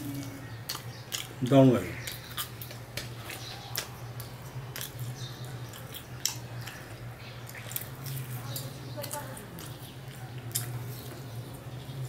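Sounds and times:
person chewing: 0.2s - 1.4s, 2.0s - 8.6s, 9.6s - 11.2s.

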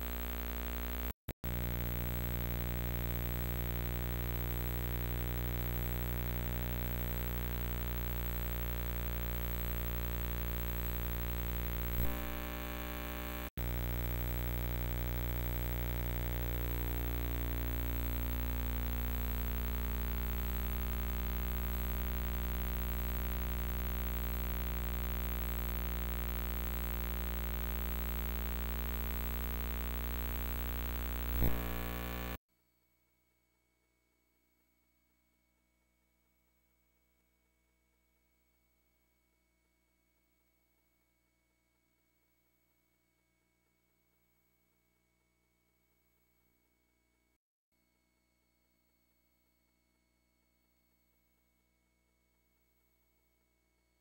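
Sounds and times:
electrical hum and buzz: 0.0s - 32.4s.

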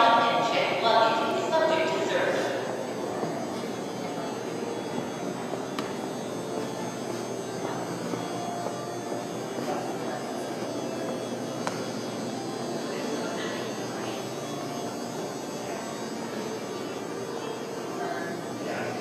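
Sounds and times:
airport terminal hum: 0.0s - 19.0s.

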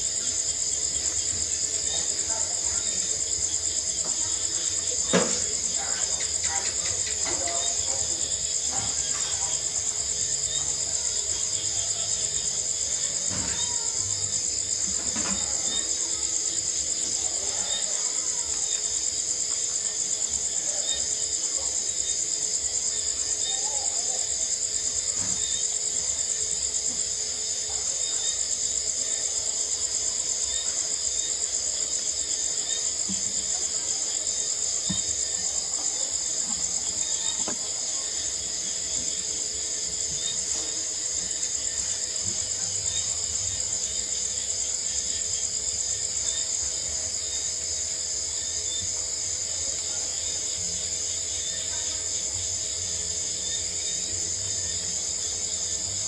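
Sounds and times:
night insects trilling: 0.0s - 56.0s.

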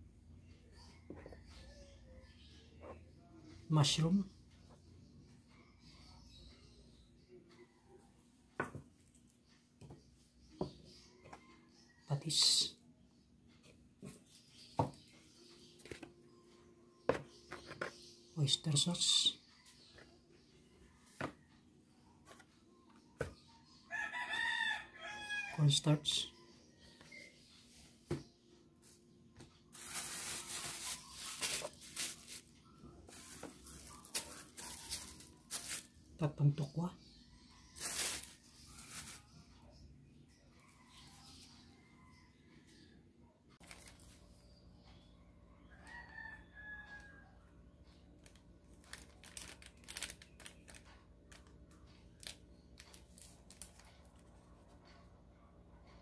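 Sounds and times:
rooster crowing: 23.9s - 25.7s, 45.7s - 47.3s
plastic bag crinkling: 29.7s - 32.5s, 33.1s - 36.0s, 37.8s - 39.3s, 48.8s - 51.4s.

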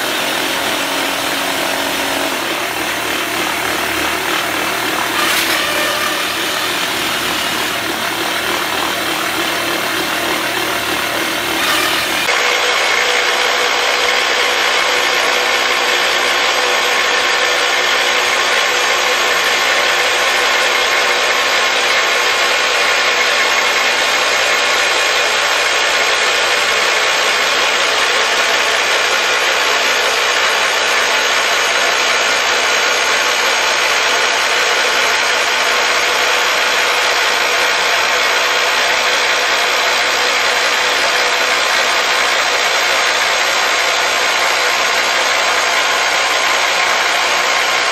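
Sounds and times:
rock drill boring into rock: 0.0s - 12.4s.

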